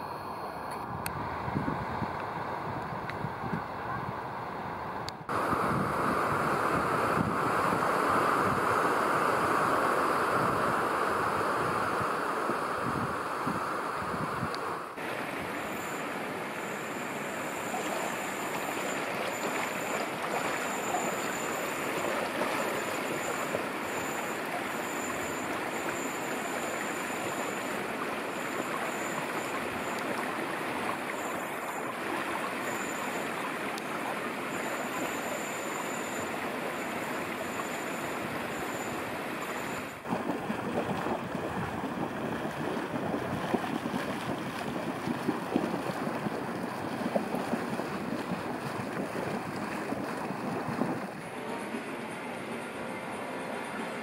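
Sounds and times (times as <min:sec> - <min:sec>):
wind: 0:00.0 - 0:54.0
water rushing: 0:05.3 - 0:54.0
faint high whistle: 0:15.6 - 0:30.2, 0:34.5 - 0:40.0.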